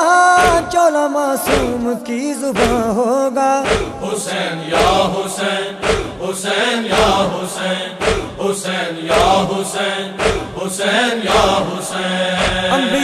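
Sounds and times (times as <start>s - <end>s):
chest-beating thuds: 0.4s - 0.8s, 1.5s - 1.9s, 2.6s - 2.9s, 3.6s - 4.2s, 5.8s - 6.3s, 8.0s - 8.5s, 10.2s - 10.6s, 12.4s - 13.0s
chorus of voices chanting: 3.6s - 13.0s.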